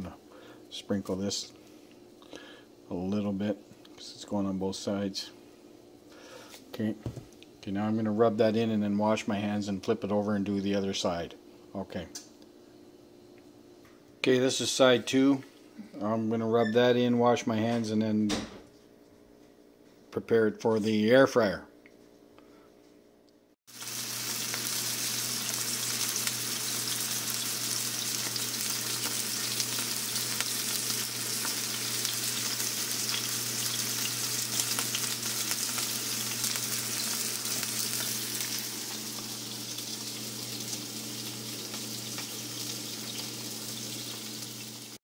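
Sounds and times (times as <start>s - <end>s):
meat sizzling in a frying pan: 23.7s - 45.0s.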